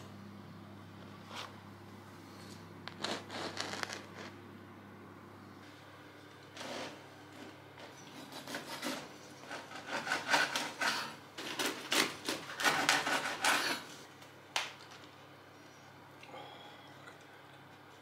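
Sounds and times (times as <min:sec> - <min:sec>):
knife sawing through bread crust: 0:03.0 - 0:04.0, 0:08.1 - 0:14.0.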